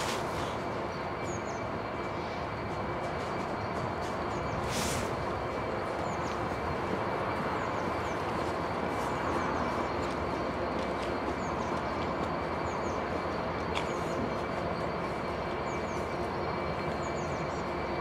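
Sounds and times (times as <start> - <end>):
freight train rumbling: 0.0 - 18.0.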